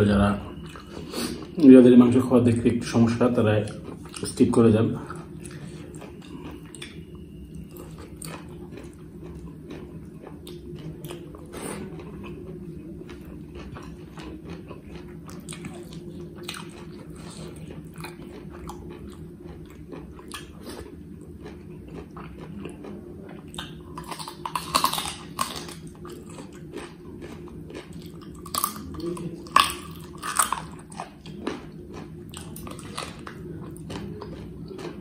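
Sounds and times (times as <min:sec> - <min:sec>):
steady low hum: 0:00.0 - 0:35.0
man chewing food: 0:00.3 - 0:02.1, 0:02.8 - 0:35.0.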